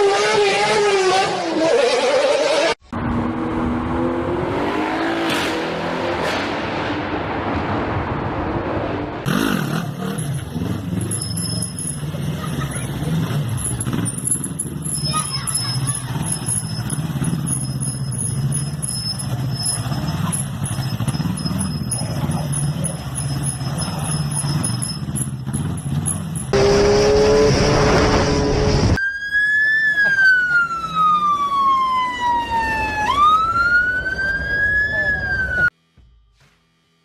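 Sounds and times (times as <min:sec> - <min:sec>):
motorcycle engine running: 0:09.3 - 0:27.5
siren-like wail: 0:28.8 - 0:35.7.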